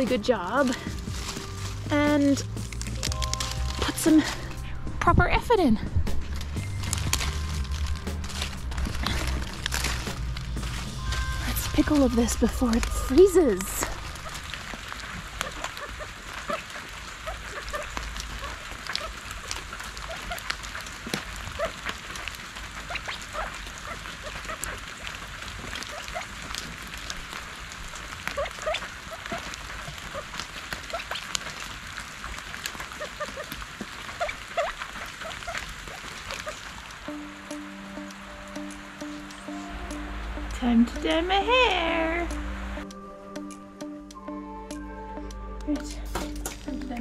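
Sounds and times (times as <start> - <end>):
rain dripping on leaves: 0.0 - 4.8, 5.4 - 43.6, 45.7 - 47.0
quail chirping: 10.6 - 25.2, 25.8 - 26.3, 28.2 - 31.4, 32.8 - 39.7.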